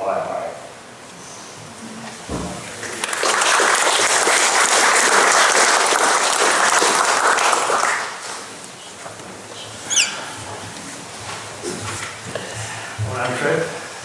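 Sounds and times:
audience applauding: 2.6 - 9.1.

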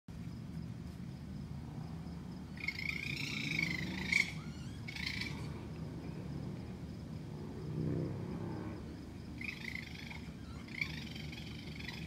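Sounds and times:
steady low hum: 0.1 - 12.0
animal high-pitched wavering call: 2.6 - 5.6, 9.4 - 12.0.

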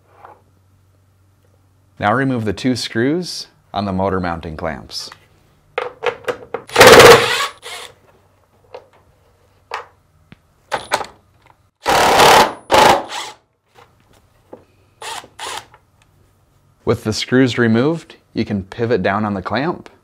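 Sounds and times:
cordless driver whirring: 6.7 - 8.0, 15.0 - 15.8.

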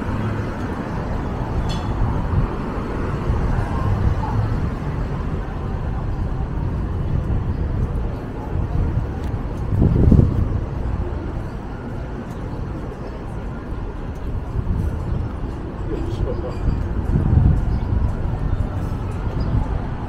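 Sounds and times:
traffic rumble: 0.0 - 20.0.

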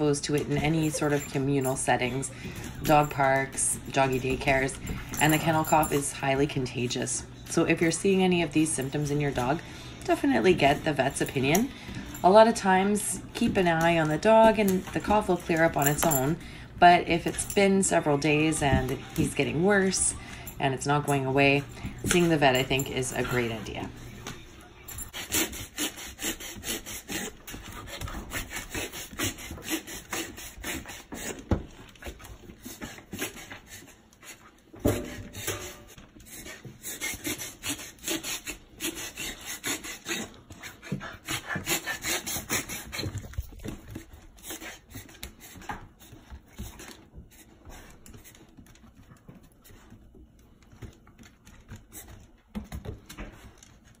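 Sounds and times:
dog claws clicking on wooden floor: 24.2 - 54.0.

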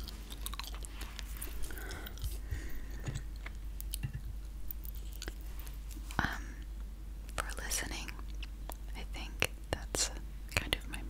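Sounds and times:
gum chewing wet mouth clicks: 0.0 - 5.4.

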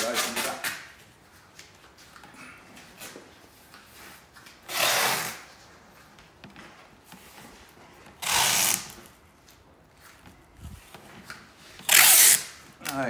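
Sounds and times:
masking tape ripped off roll: 0.0 - 0.9, 4.6 - 5.6, 8.2 - 9.2, 11.8 - 13.0.

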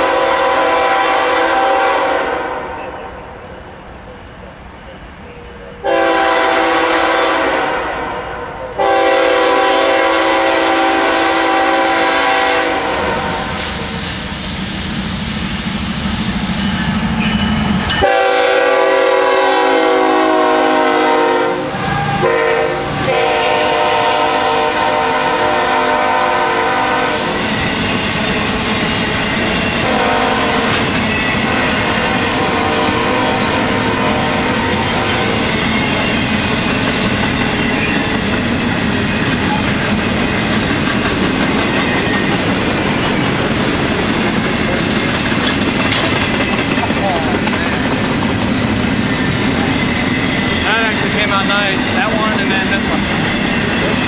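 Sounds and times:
train air horn blasts: 0.0 - 3.3, 5.8 - 14.0, 18.0 - 27.4, 29.8 - 35.5
locomotive engines rumbling: 2.9 - 54.0
train wheels clattering on rails: 13.3 - 18.4, 26.1 - 32.5, 34.4 - 54.0.

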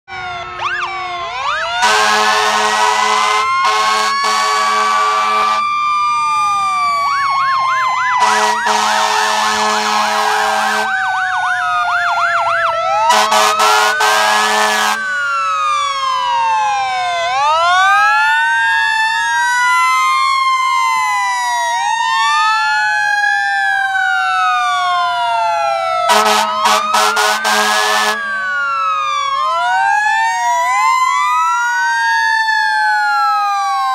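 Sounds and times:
emergency sirens wailing: 0.1 - 33.9
long horn blasts: 1.8 - 5.6, 8.2 - 10.9, 13.1 - 15.0, 26.1 - 28.3.

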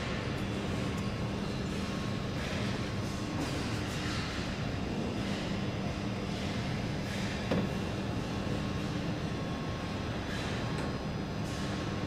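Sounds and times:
machinery hum and rumble: 0.0 - 12.0.

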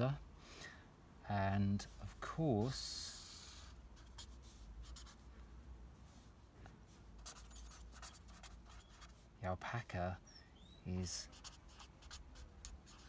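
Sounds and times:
pen scratching on paper: 4.0 - 5.2, 7.2 - 9.1, 11.3 - 13.0.

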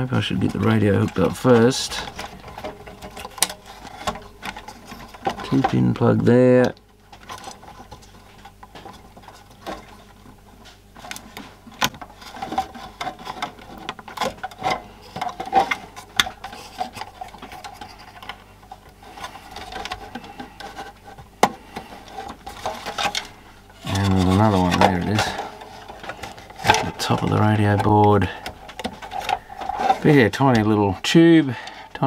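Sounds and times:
plastic parts clicking and rubbing: 0.0 - 32.0.

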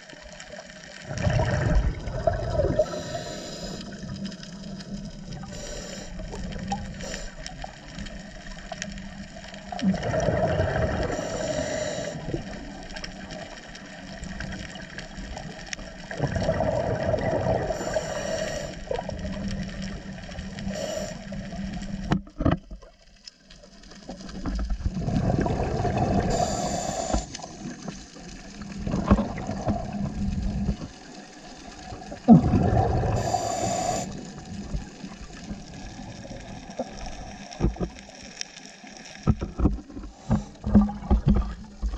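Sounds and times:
exhaled bubbles gushing underwater: 0.0 - 22.2, 23.8 - 38.3, 39.2 - 41.9
steady underwater hiss: 0.0 - 22.5, 23.3 - 41.9.

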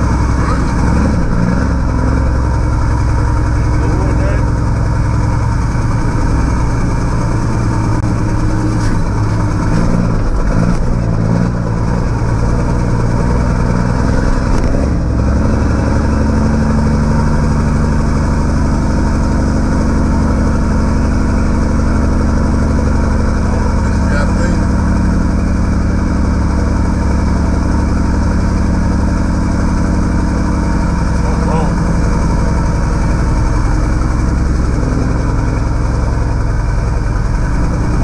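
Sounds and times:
diesel truck engine droning: 0.0 - 38.0.

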